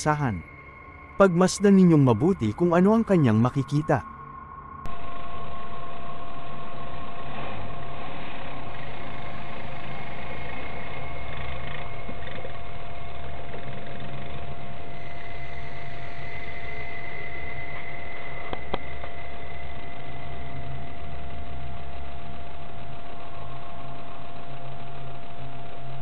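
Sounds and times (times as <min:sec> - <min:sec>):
steady high tone: 0:00.0 - 0:04.9.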